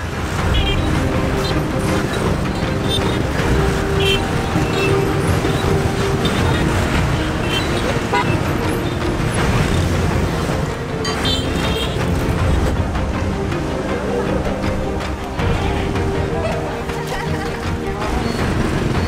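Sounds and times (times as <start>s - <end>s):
scooter traffic rumble: 0.0s - 19.0s
horn beeping: 0.4s - 10.4s, 11.0s - 12.6s.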